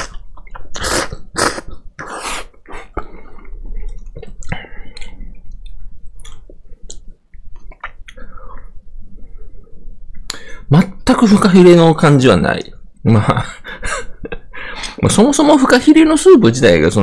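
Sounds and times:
person slurping noodles: 0:00.0 - 0:03.0
person chewing: 0:00.0 - 0:03.1.

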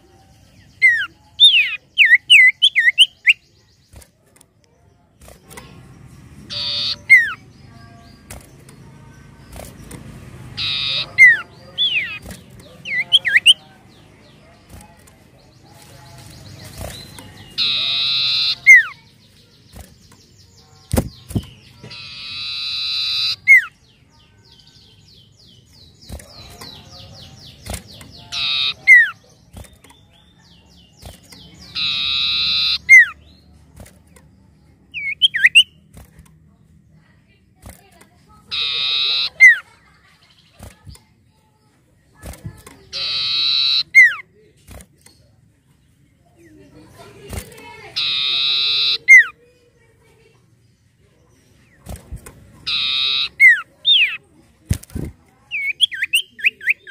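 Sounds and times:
bird buzzy trilling: 0:06.3 - 0:13.6, 0:16.6 - 0:23.9, 0:25.9 - 0:30.0, 0:30.7 - 0:34.0, 0:38.4 - 0:39.8, 0:42.3 - 0:44.2, 0:47.3 - 0:49.4, 0:52.6 - 0:54.2.

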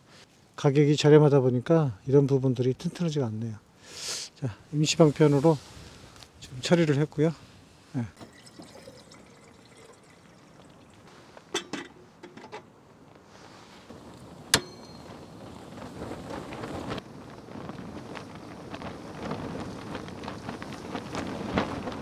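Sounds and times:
sharp ringing clink: 0:14.6 - 0:15.3.

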